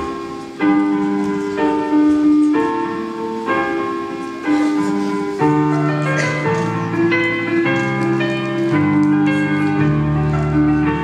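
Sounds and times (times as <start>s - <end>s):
slow piano chords: 0.0s - 11.0s.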